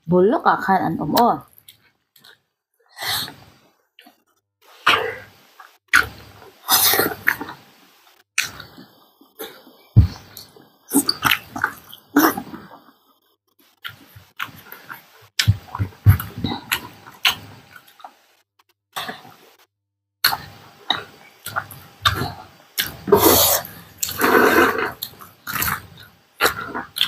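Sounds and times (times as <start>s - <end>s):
wet chewing and lip-smacking: 20.2s - 27.0s.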